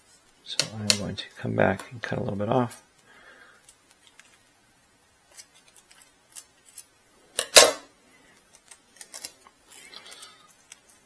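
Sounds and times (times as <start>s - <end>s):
tape rustling: 3.6s - 4.5s, 5.2s - 6.9s.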